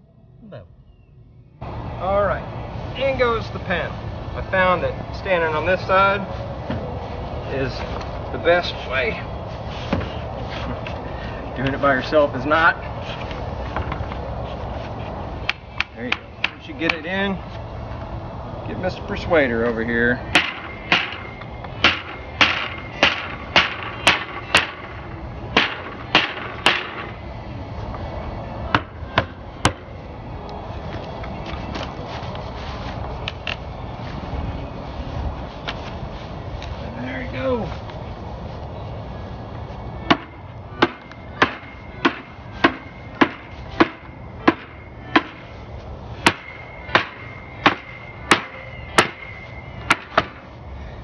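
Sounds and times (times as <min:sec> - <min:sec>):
rubber mallet striking wood: 0:20.4 - 0:24.9, 0:25.6 - 0:27.1, 0:40.1 - 0:45.4, 0:46.2 - 0:49.3, 0:49.9 - 0:50.4.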